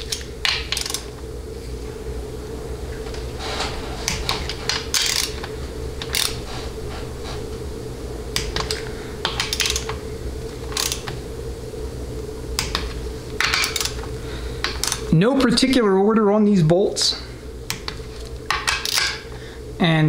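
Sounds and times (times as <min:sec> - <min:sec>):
steady low hum: 0:00.0 - 0:20.0
torque wrench clicking: 0:00.1 - 0:01.1, 0:04.2 - 0:05.4, 0:06.0 - 0:06.4, 0:08.4 - 0:10.0, 0:10.7 - 0:11.1.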